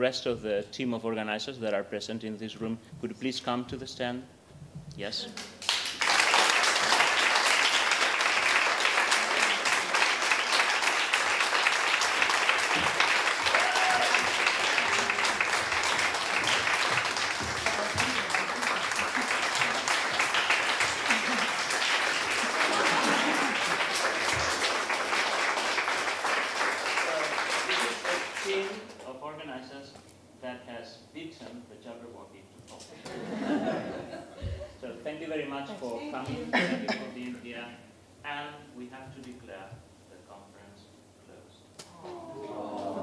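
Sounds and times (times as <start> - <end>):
audience applauding: 5.4 - 29.0.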